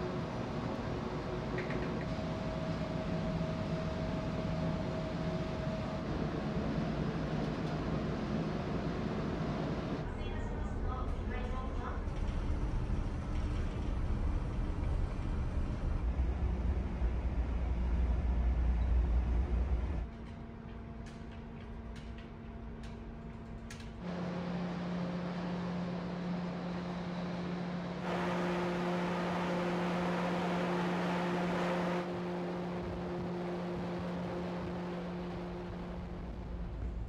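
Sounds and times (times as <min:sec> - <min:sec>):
ship machinery drone: 0:00.0 - 0:37.0
broad rushing noise: 0:24.1 - 0:37.0.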